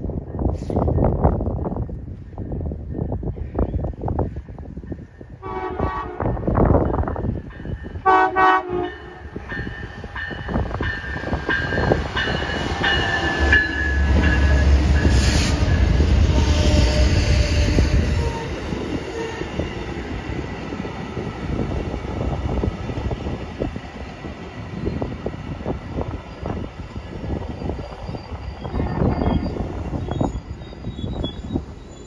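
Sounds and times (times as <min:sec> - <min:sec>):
train horn blast: 0:05.4 - 0:06.5, 0:08.0 - 0:09.2, 0:15.0 - 0:18.4.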